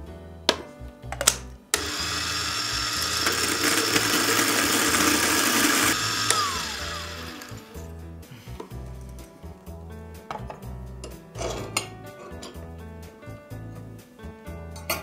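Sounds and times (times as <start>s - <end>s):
motor spinning down whine: 1.8s - 7.7s
coffee grinder grinding beans: 1.8s - 7.9s.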